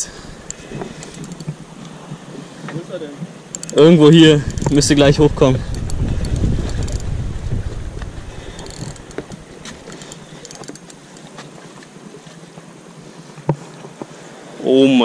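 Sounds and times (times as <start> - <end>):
fishing reel handling clicks: 0.4 - 1.6, 3.5 - 5.0, 5.6 - 7.2, 8.5 - 11.3
wind rumbling on microphone: 3.7 - 10.1.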